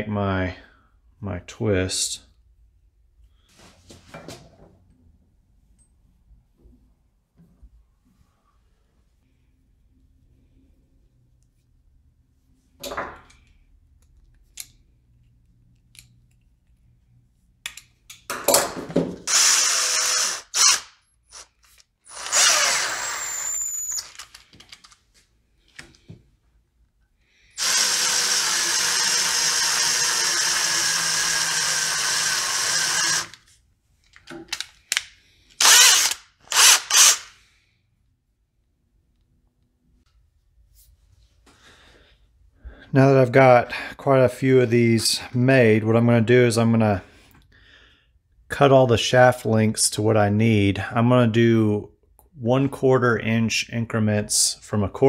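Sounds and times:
cordless drill spinning: 19.3 - 24.6, 27.5 - 33.5, 35.6 - 37.4.

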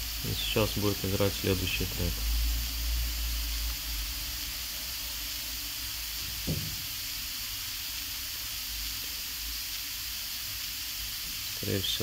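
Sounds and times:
tape hiss: 0.0 - 12.0
short knock: 6.4 - 6.8.

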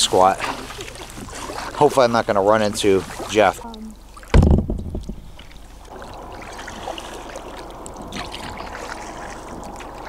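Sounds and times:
water trickling off paddles: 0.0 - 10.0
low thump: 4.3 - 5.6.

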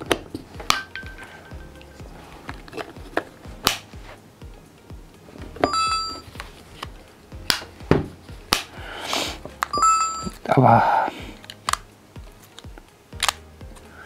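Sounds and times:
faint background music: 0.0 - 14.0
short ringing tone: 9.7 - 10.3
charging case clicks: 11.4 - 11.9, 12.5 - 13.9.

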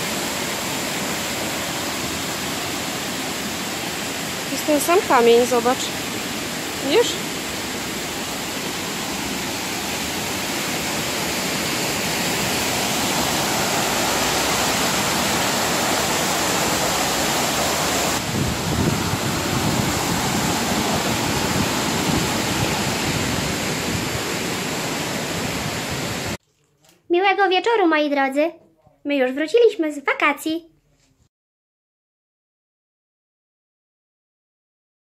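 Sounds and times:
water rushing through sluice: 0.0 - 26.4.

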